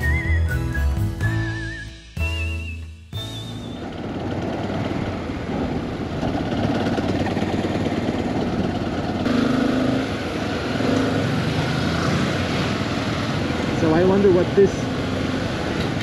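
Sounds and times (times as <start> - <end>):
wind and road noise: 3.1 - 16.0
motorcycle engine running: 7.0 - 16.0.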